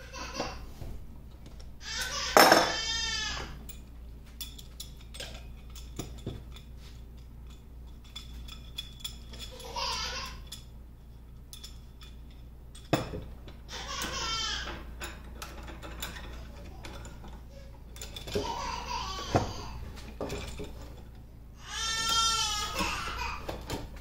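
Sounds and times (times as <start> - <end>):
hand tools clinking on workbench: 2.0 - 2.8.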